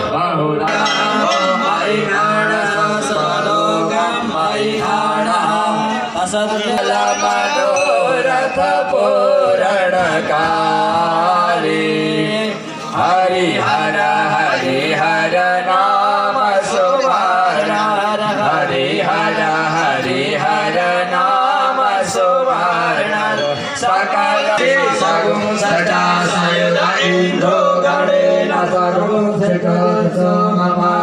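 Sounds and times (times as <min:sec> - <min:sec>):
group chanting: 0:00.0 - 0:31.0.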